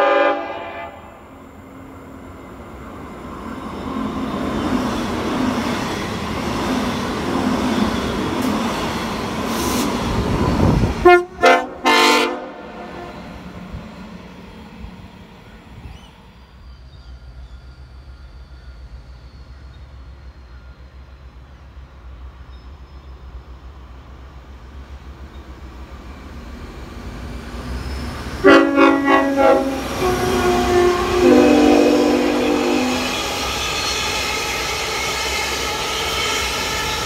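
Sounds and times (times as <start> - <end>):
multi-tone train horn: 0.0 - 1.4, 10.9 - 13.5, 28.4 - 33.4
diesel train rumble: 0.0 - 37.0.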